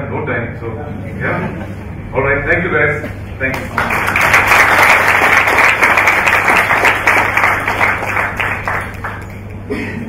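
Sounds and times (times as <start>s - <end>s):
audience applauding: 3.5s - 9.7s.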